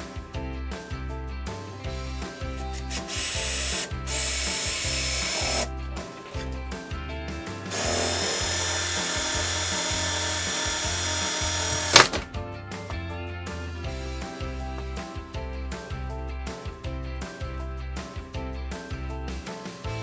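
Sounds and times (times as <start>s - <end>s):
background music with steady beat: 0.0s - 20.0s
power drill boring into plastic: 2.9s - 5.7s, 7.7s - 12.3s.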